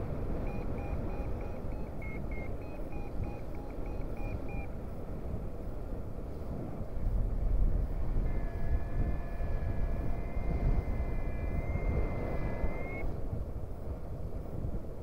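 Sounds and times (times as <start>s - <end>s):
wind buffeting microphone: 0.0s - 15.0s
variometer electronic tone: 0.1s - 4.7s, 7.6s - 13.2s.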